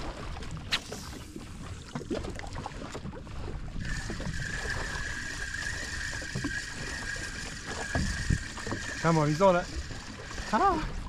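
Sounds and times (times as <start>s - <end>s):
water noise: 0.0s - 11.0s
wind: 0.0s - 11.0s
fishing reel cranking whine: 3.8s - 11.0s.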